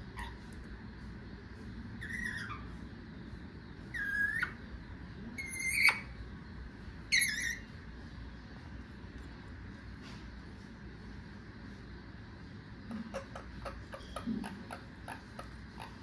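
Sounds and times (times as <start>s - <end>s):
parakeet high-pitched calls: 0.0s - 0.5s, 2.0s - 2.8s, 3.9s - 4.7s, 5.4s - 6.2s, 7.0s - 7.7s, 12.9s - 16.0s.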